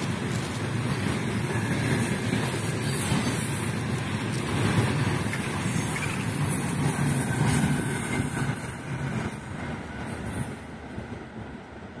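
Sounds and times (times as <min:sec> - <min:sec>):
freight train wheels rumbling: 0:00.0 - 0:12.0.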